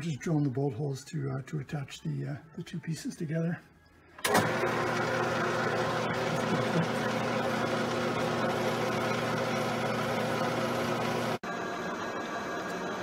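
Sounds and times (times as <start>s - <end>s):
lathe running: 4.2s - 13.0s
milling machine spindle running: 4.3s - 13.0s.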